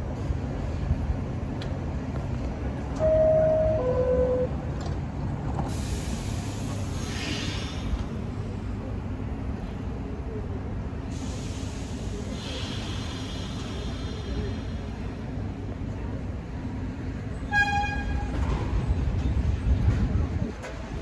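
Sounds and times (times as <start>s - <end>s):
low rumble of standing train: 0.0s - 21.0s
short hiss of air: 5.7s - 8.0s, 11.1s - 14.6s.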